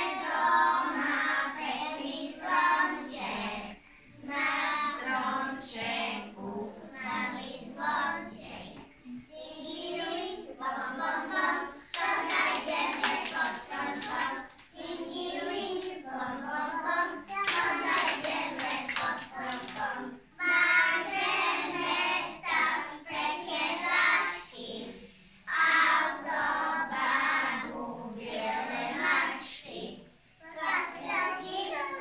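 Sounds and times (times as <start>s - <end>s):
young children singing: 0.0s - 32.0s
hand claps: 11.9s - 14.7s, 17.3s - 19.9s.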